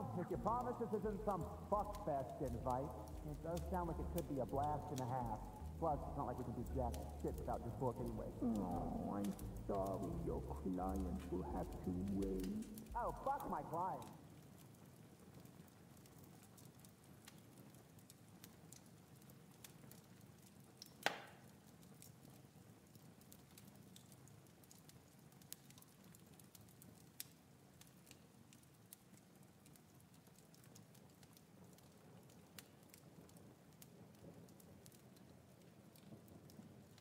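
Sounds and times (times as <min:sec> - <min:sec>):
small ticks: 0:14.0 - 0:37.0.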